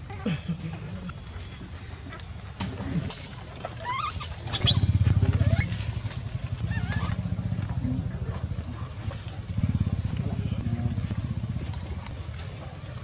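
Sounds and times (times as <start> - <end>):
small engine rumbling: 0.0 - 13.0
baby monkey squealing: 3.0 - 6.1, 6.7 - 7.2.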